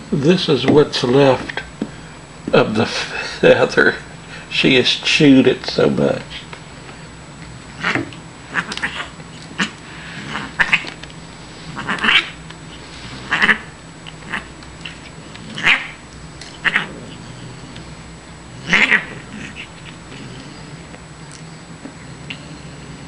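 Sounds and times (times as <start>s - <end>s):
cat caterwauling cries: 7.8s - 9.7s, 11.8s - 12.4s, 13.3s - 13.7s, 15.6s - 16.0s, 16.6s - 16.9s, 18.6s - 19.7s.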